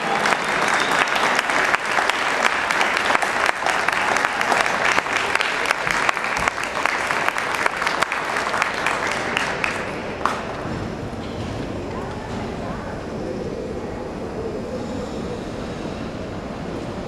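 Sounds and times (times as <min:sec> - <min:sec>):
crowd applauding: 0:00.0 - 0:10.8.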